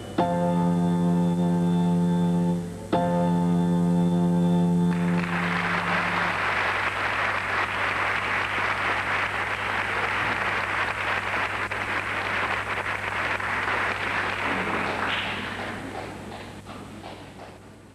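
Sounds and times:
low steady hum: 0.0s - 17.9s
audience applauding: 4.9s - 17.9s.

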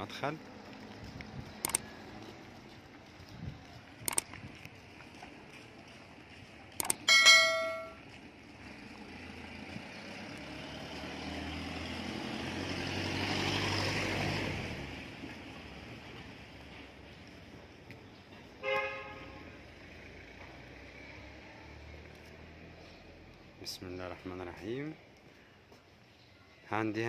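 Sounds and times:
sharp clicks: 1.2s - 1.9s, 4.0s - 4.8s, 6.8s - 7.3s
bell chime: 7.1s - 8.0s
car passing: 7.3s - 17.6s, 18.6s - 24.4s.

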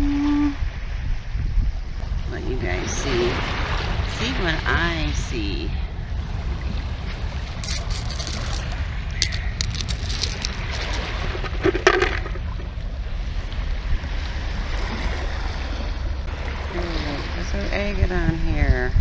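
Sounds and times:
lake water: 0.0s - 19.0s
wind on microphone: 0.0s - 19.0s
low rumble: 3.6s - 19.0s
pebbles clicking together: 7.6s - 12.4s.

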